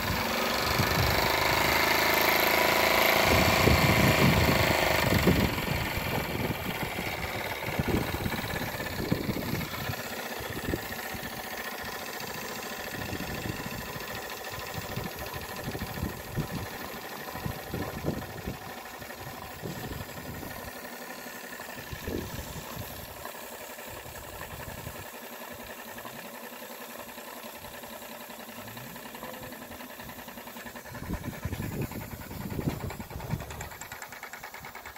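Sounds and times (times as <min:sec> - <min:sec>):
steam engine hissing: 0:00.0 - 0:34.9.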